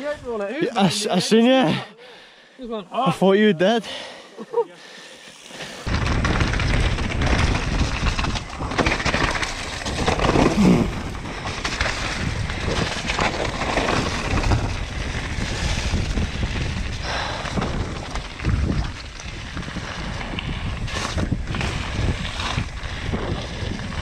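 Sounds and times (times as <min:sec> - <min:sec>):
bike tyre roar: 0:05.4 - 0:24.0
bike chassis rattle: 0:05.8 - 0:24.0
wind buffeting microphone: 0:05.8 - 0:24.0.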